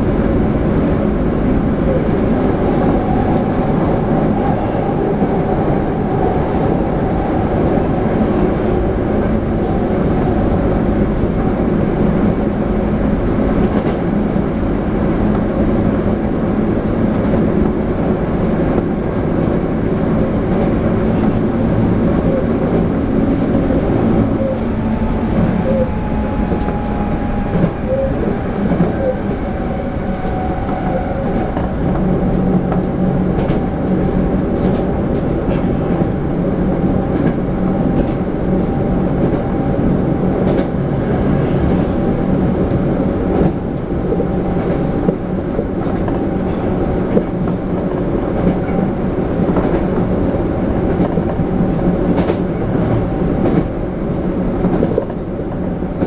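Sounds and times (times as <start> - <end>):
train wheels rumbling on rails: 0.0 - 56.0
steady whine: 20.7 - 45.2.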